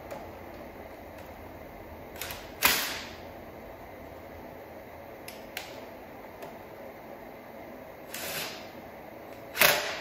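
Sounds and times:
impact driver bursts: 9.5 - 10.0.

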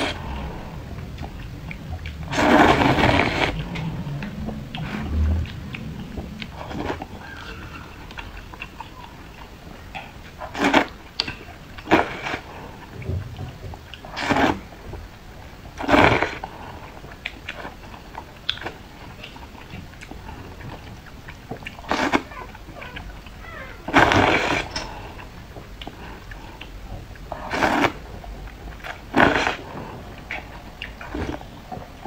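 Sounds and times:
quiet chewing: 0.0 - 32.0
loud slurps: 2.2 - 8.2, 27.3 - 28.1, 28.8 - 31.5.

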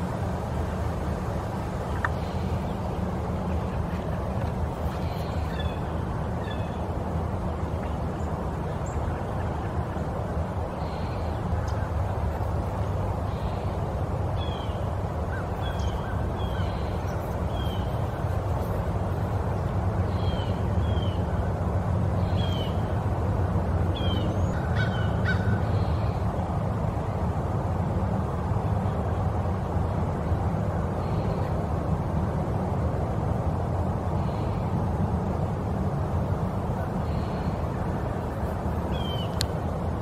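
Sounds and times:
birds chirping: 1.8 - 21.4, 36.7 - 39.6.

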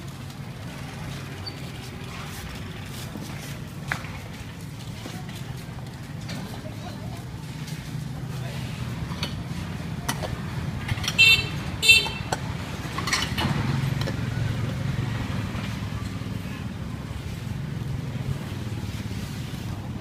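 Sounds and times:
low rumble of street traffic: 0.0 - 20.0
vehicle horn beeping: 11.1 - 12.3.

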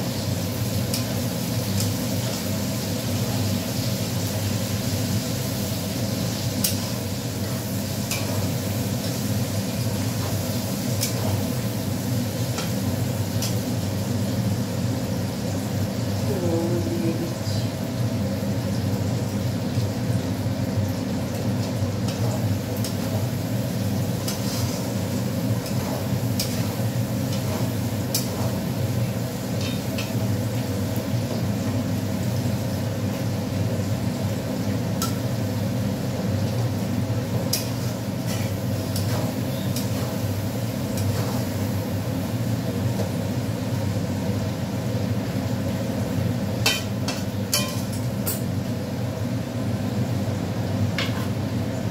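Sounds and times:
low kitchen hum: 0.0 - 51.9
onions tapping on steel wok: 46.6 - 48.4.

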